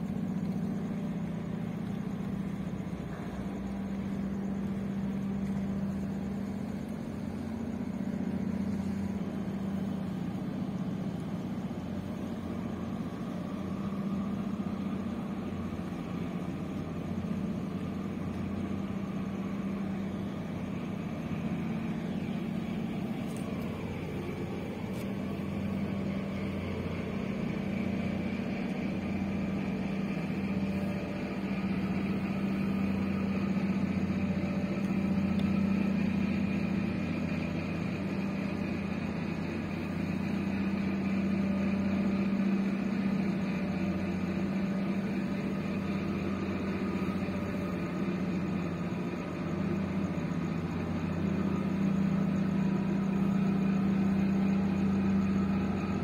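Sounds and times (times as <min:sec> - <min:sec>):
ship engines droning: 0:00.0 - 0:56.0.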